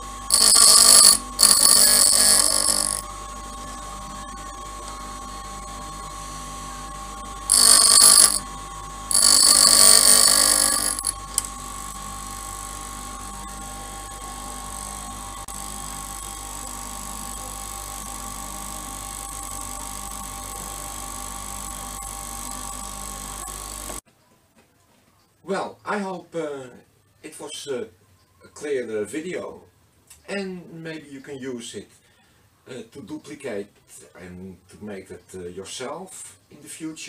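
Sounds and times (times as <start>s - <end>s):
bench grinder motor whine: 0.0s - 24.0s
drill bit grinding hiss: 0.3s - 3.0s, 7.5s - 8.4s, 9.1s - 11.5s.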